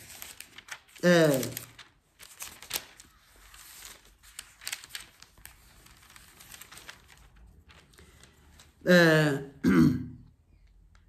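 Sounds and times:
rustling: 0.0s - 8.8s.

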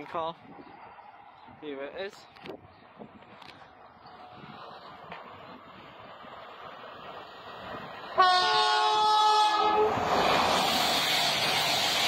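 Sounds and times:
train passing at speed: 0.0s - 12.0s
two-tone train horn: 8.2s - 10.0s.

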